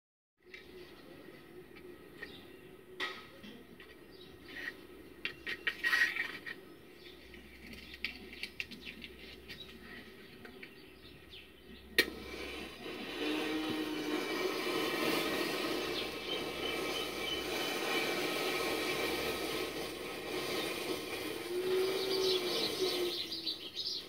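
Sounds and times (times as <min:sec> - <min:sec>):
match flare hissing: 0:12.0 - 0:24.0.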